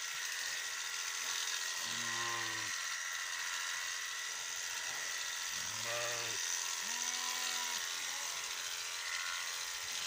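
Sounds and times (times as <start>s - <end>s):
electric shears buzzing: 0.0s - 10.0s
sheep bleating: 5.6s - 9.6s.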